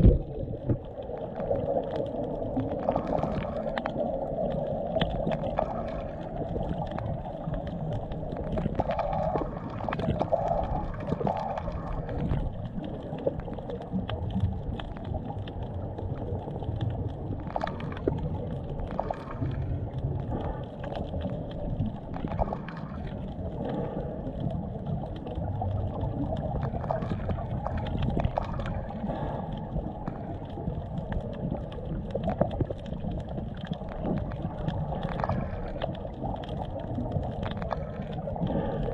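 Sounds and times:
muffled underwater rumble: 0:00.0 - 0:38.9.

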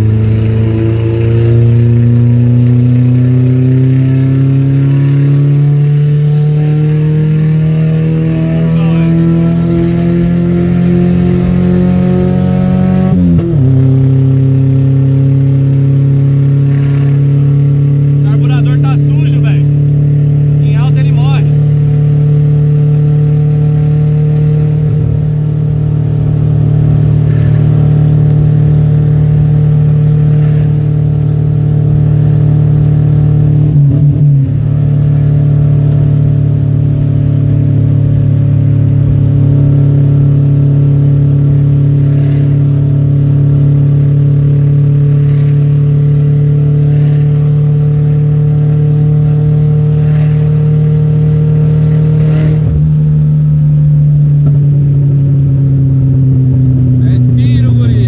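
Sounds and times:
car engine running from inside cabin: 0:00.0 - 0:58.0.

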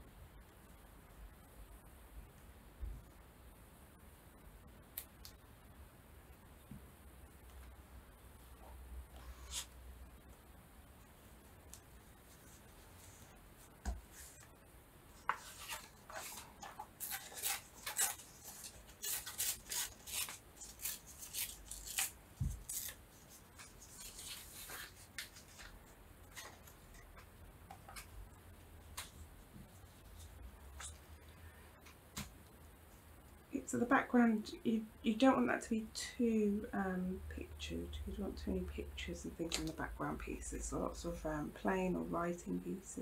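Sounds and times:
paper rustling and tearing: 0:15.3 - 0:26.8.

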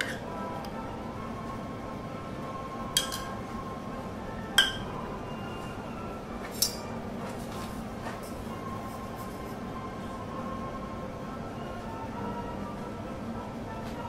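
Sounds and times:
steady hum: 0:00.0 - 0:14.0
metal tools clinking on steel griddle: 0:06.5 - 0:06.9.

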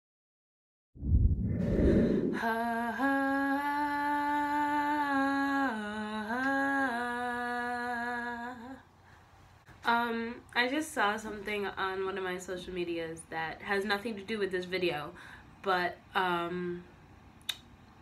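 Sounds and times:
low rumbling noise: 0:01.0 - 0:02.6
woman singing wordless tune: 0:02.3 - 0:08.9.

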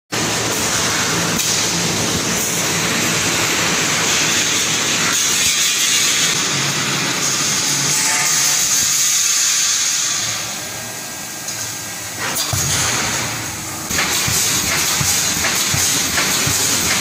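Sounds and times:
welding machine hissing: 0:00.2 - 0:17.0.

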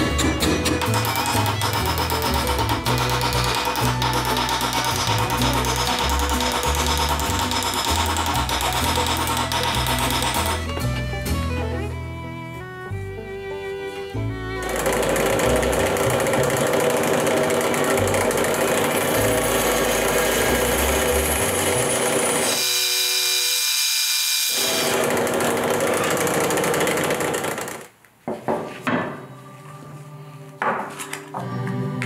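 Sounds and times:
band saw cutting wood: 0:00.0 - 0:11.0, 0:14.6 - 0:27.8.

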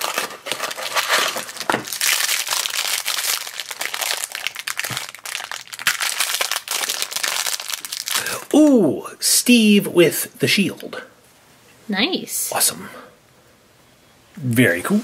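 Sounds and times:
cardboard box tearing: 0:00.0 - 0:01.9
foil wrapper crinkling: 0:00.0 - 0:08.5.

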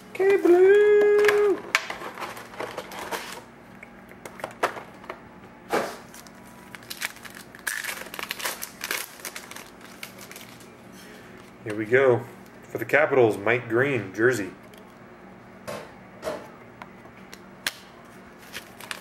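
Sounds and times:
plastic wrapping crinkling: 0:06.1 - 0:10.8, 0:18.4 - 0:19.0.

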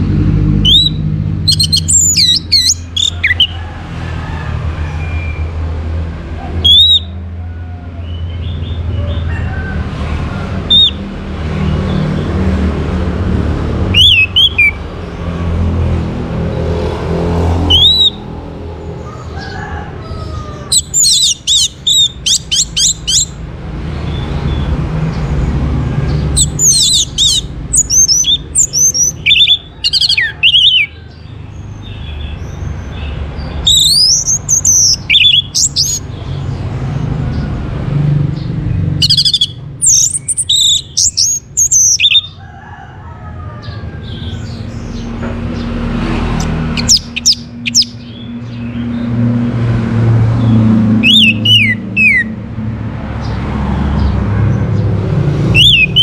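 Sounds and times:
thrush singing whistles: 0:00.6 - 0:03.5, 0:06.6 - 0:07.2, 0:13.9 - 0:14.8, 0:17.7 - 0:18.2, 0:20.8 - 0:23.4, 0:26.4 - 0:30.9, 0:33.6 - 0:36.0, 0:39.0 - 0:42.4, 0:51.0 - 0:52.3, 0:55.6 - 0:56.0.

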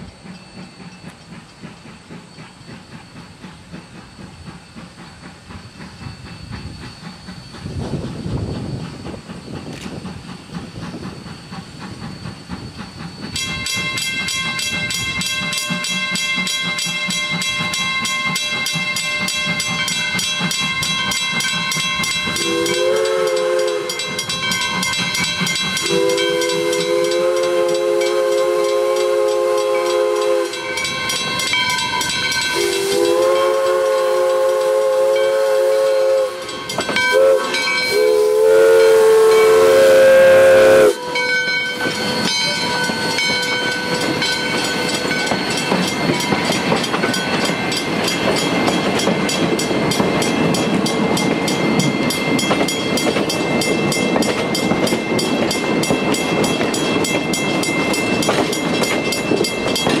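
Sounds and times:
train cars rumbling and clattering: 0:00.0 - 1:00.0
steam locomotive whistle: 0:22.0 - 0:45.8.

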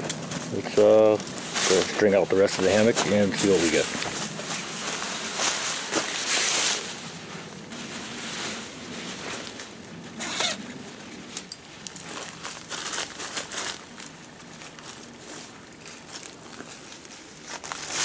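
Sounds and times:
fabric rustling and crinkling: 0:00.0 - 0:18.0.

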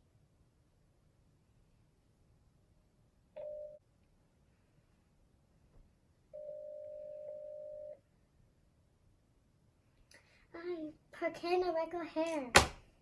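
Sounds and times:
telephone ringback tone: 0:03.4 - 0:03.8, 0:06.4 - 0:08.0.

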